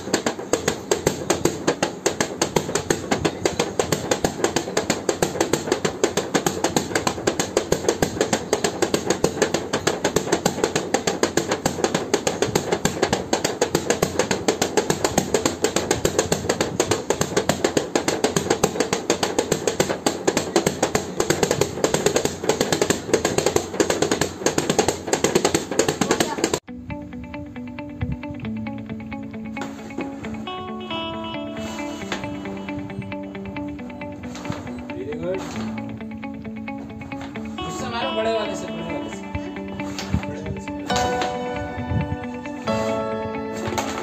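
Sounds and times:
rapid sharp taps: 0:00.0 - 0:26.7.

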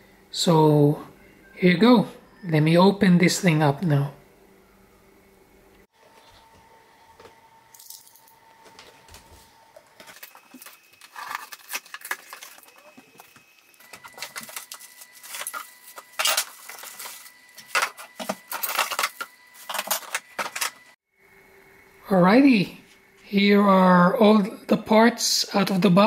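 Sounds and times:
plastic wrap rustling: 0:10.0 - 0:20.8
metal parts clattering: 0:10.1 - 0:12.8, 0:14.0 - 0:20.8.

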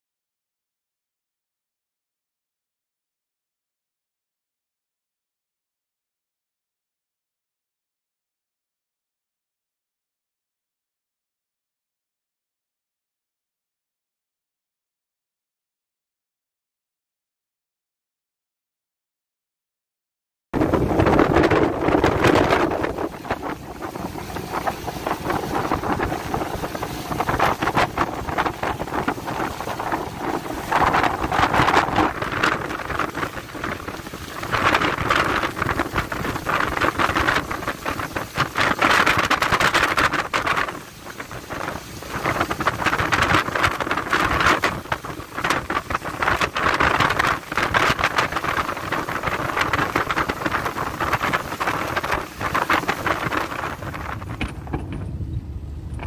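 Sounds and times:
waves washing against boat: 0:20.6 - 0:56.0
wind buffeting microphone: 0:20.6 - 0:56.0.

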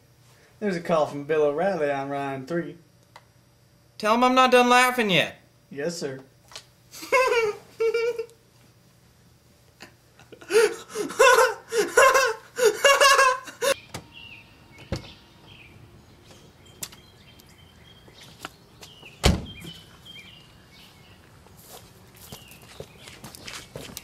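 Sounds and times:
man laughing heartily: 0:07.0 - 0:08.4, 0:09.8 - 0:13.8
birds chirping: 0:13.7 - 0:23.7
car door slamming: 0:19.2 - 0:19.8.

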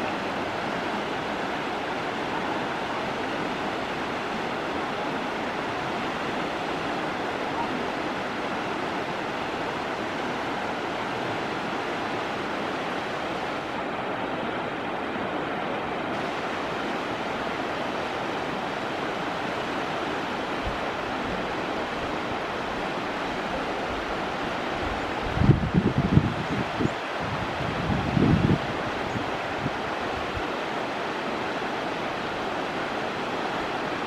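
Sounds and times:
river rapids rushing over rocks: 0:00.0 - 0:34.0.

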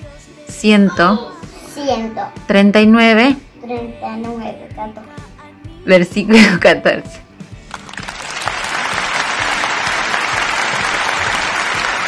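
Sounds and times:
crowd applauding: 0:07.7 - 0:12.0.

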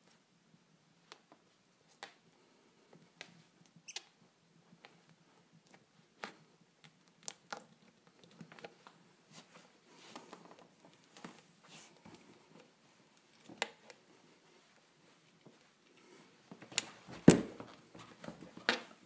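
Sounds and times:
plastic sole clicking and creaking: 0:03.2 - 0:04.2.

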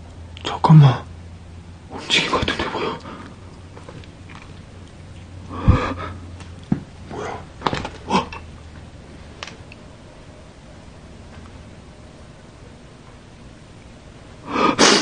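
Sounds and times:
breathy rustles: 0:01.9 - 0:08.4.

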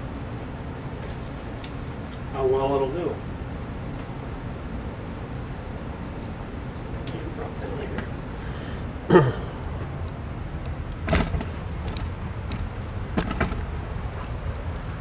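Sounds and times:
low background hum: 0:00.0 - 0:15.0
loud bump: 0:11.0 - 0:13.7.

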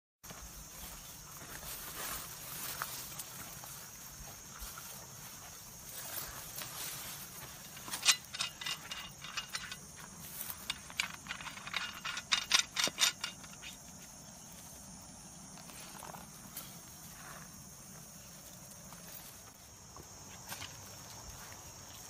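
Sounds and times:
metallic clicks and rattles: 0:07.6 - 0:13.8.

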